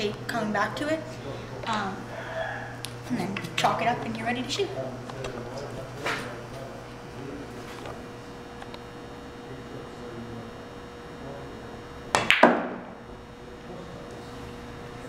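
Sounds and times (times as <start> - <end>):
cue striking ball clack: 12.1 - 13.0.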